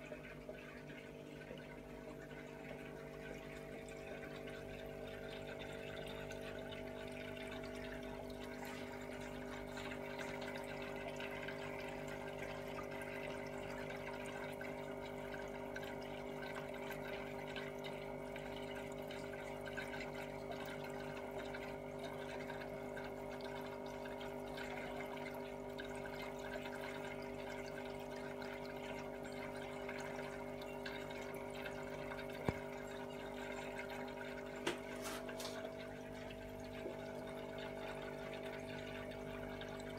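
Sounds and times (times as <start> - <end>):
pump hum: 0.0 - 39.9
water trickling: 0.0 - 39.9.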